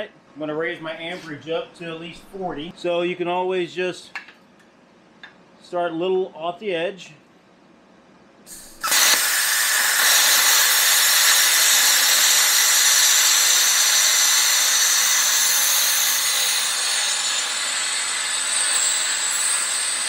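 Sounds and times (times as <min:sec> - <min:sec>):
plasma torch firing burst: 0:08.5 - 0:12.4
plasma cutter hissing: 0:08.5 - 0:19.4.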